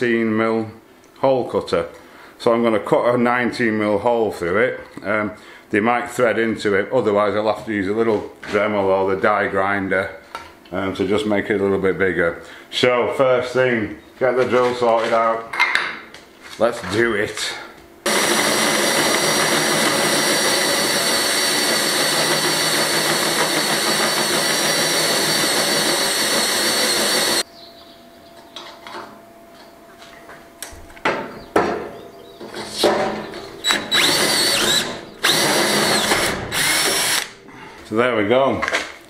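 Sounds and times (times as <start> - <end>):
cordless drill cutting metal: 18.1 - 27.4, 33.6 - 37.4.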